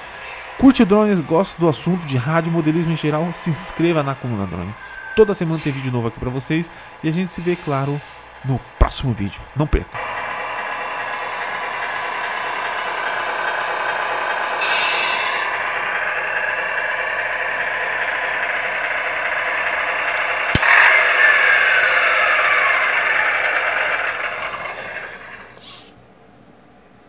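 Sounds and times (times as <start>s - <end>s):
air-brake hiss: 0.0s - 1.2s, 2.0s - 8.8s, 10.0s - 26.0s
simulated diesel engine running: 0.0s - 25.9s
sharp click: 20.5s - 21.0s.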